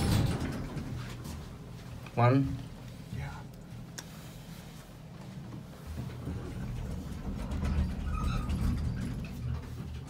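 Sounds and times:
elevator car low rumble: 0.0s - 2.0s, 5.5s - 10.0s.

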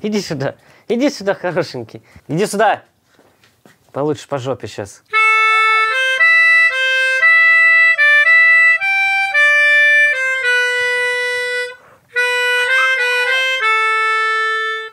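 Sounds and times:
melodica tune: 5.1s - 14.9s.

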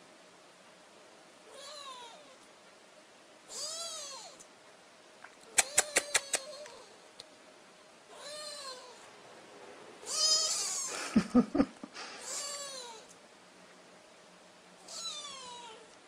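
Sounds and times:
kittens mewing: 3.5s - 4.4s, 5.5s - 7.0s, 8.1s - 9.0s, 10.0s - 13.1s
sharp clicks: 5.2s - 7.3s.

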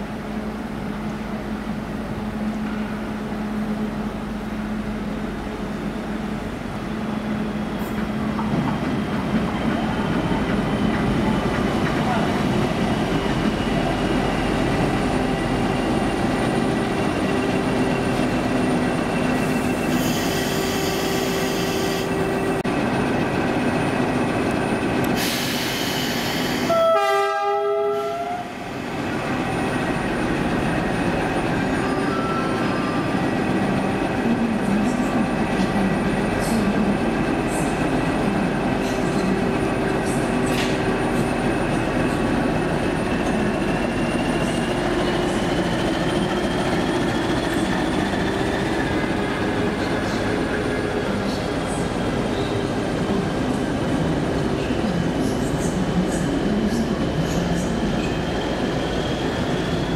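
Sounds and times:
diesel locomotive engine: 0.0s - 59.9s
hiss: 25.2s - 26.7s
locomotive horn blast: 26.7s - 28.5s.

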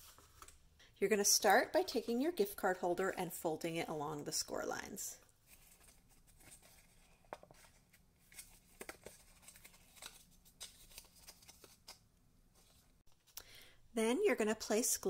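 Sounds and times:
cardstock rustling being folded: 0.0s - 0.6s, 5.3s - 13.4s
soft paper crackles: 5.2s - 13.4s.

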